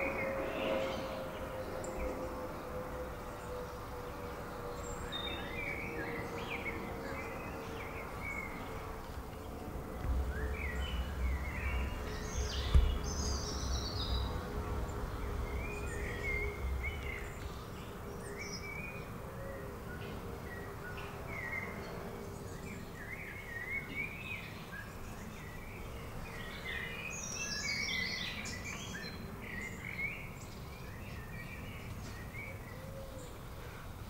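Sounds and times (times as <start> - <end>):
birds chirping: 0.0 - 34.0
low rumble: 8.3 - 18.4
sharp knock: 10.0 - 14.3.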